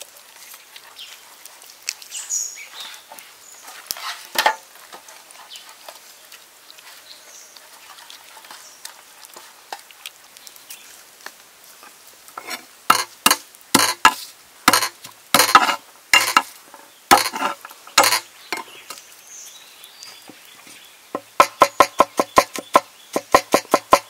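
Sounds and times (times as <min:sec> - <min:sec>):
cleaver chopping on wooden board: 0:12.9 - 0:16.4, 0:17.1 - 0:18.2, 0:21.2 - 0:24.0.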